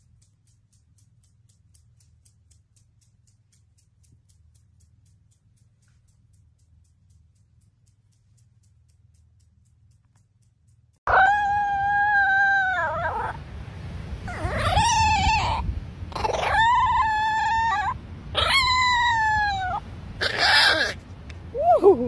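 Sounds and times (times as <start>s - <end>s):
small dog howling: 11.1s - 13.4s, 14.3s - 21.0s
wind rumble on microphone: 11.2s - 22.0s.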